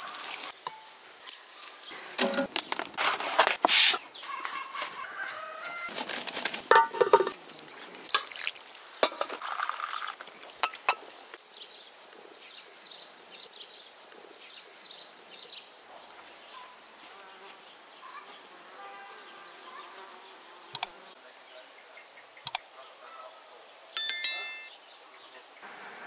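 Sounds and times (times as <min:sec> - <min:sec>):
dishes and cutlery clinking: 0:06.7 - 0:07.4, 0:09.0 - 0:09.5, 0:24.0 - 0:24.7.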